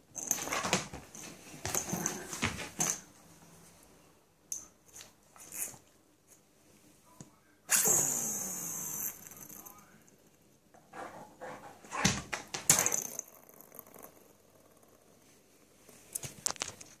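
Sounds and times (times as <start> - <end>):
spinning top whirring on floor: 12.8 - 15.0.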